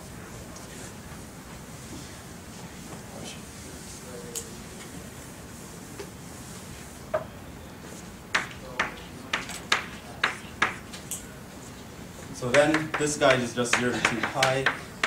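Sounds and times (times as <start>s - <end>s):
chalk tapping on blackboard: 8.3s - 10.9s, 12.5s - 14.9s.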